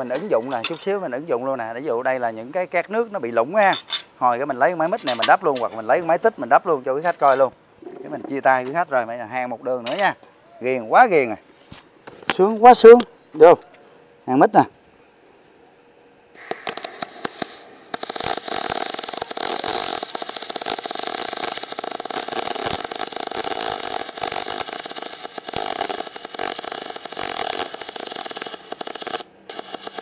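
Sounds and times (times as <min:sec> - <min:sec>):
welding arc crackling hiss: 0:16.4 - 0:30.0.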